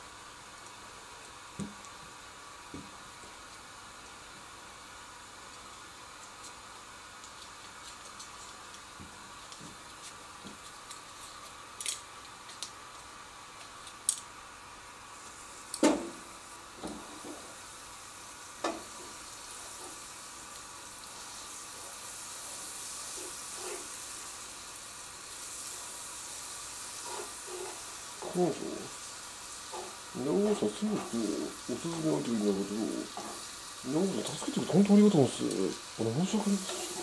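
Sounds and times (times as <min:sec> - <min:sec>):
butter sizzling in a pan: 0:00.0 - 0:37.0.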